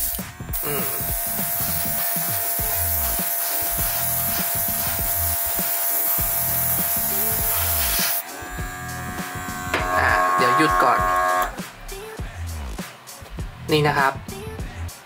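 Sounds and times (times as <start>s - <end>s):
compressor motor whine: 0.0s - 11.6s
airbrush spray hiss: 0.0s - 11.9s.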